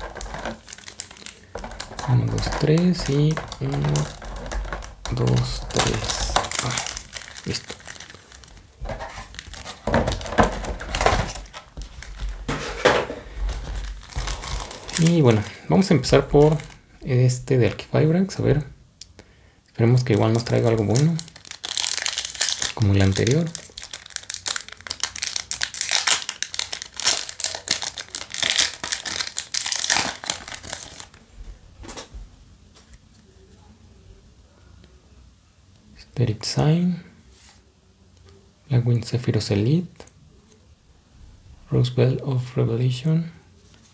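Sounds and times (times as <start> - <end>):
plastic and foil packs rustling: 0.0 - 17.9, 19.8 - 31.2.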